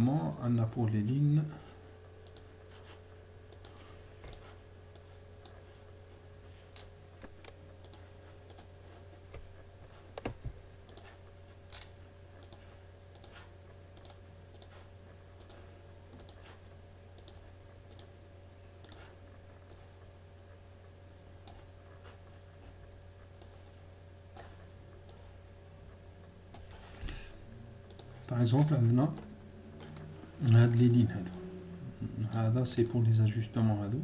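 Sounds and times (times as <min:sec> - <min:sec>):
low steady hum: 0:00.0 - 0:34.0
computer mouse clicking: 0:02.2 - 0:05.6, 0:06.7 - 0:09.5, 0:10.1 - 0:14.8, 0:15.4 - 0:18.1, 0:18.8 - 0:19.9, 0:27.9 - 0:28.2.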